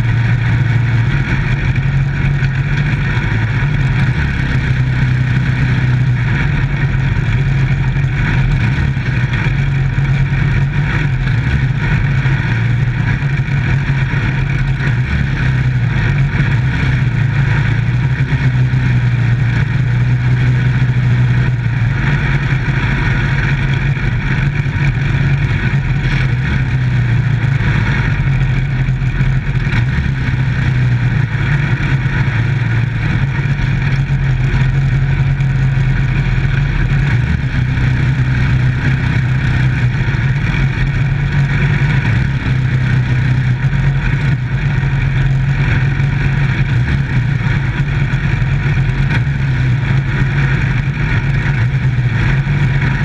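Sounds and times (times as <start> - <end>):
race car engine running hard: 0.0 - 53.0.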